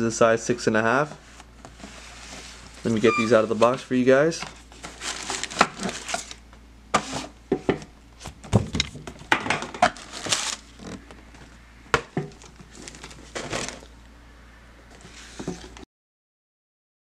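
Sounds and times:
packaging crinkling and rustling: 1.3 - 7.3, 8.2 - 11.2, 12.3 - 14.0.

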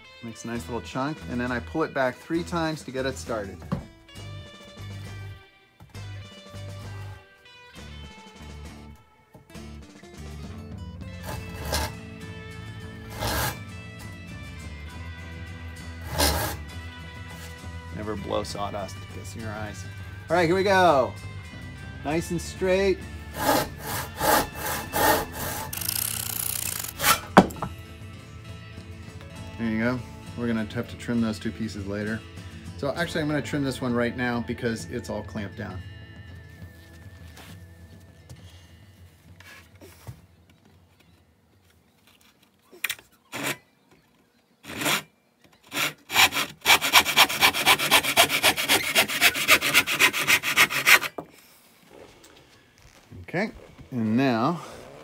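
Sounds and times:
hand saw cutting wood: 11.2 - 12.0, 12.9 - 13.7, 16.0 - 17.6, 22.6 - 27.7, 43.2 - 43.6, 44.6 - 51.3.

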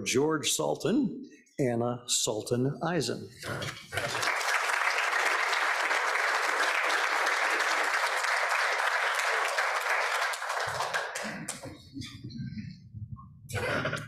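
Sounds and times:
audience applauding: 3.8 - 11.6.

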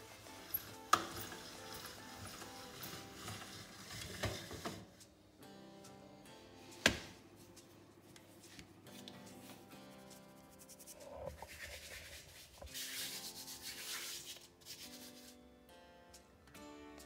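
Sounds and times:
soft background music: 0.0 - 17.0
hand brushing flour on dough: 8.4 - 15.4.

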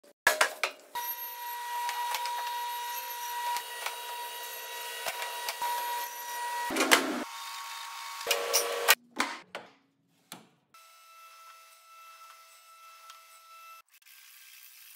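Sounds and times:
table saw whining: 1.0 - 9.0.

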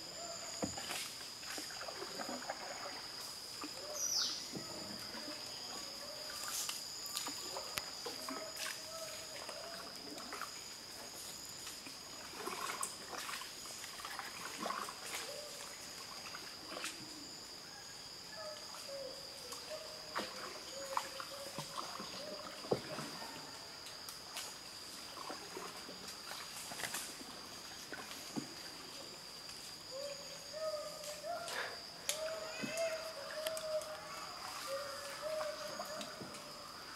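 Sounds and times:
high-pitched insect drone: 0.0 - 36.9
water splashing and trickling: 0.5 - 17.1, 20.1 - 23.4, 24.5 - 29.2, 32.2 - 36.9.

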